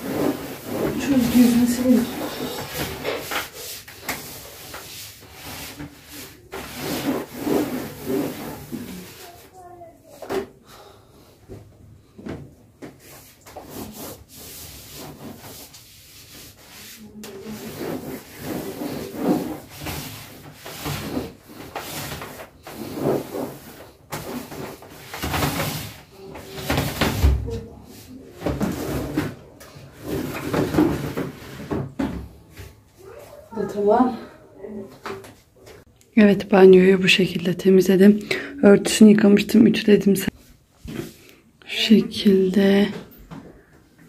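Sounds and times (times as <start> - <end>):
sponge scrubbing plastic chair: 0.0 - 9.9, 13.0 - 31.9
cloth rubbing plastic basket: 0.0 - 10.4, 12.8 - 32.0.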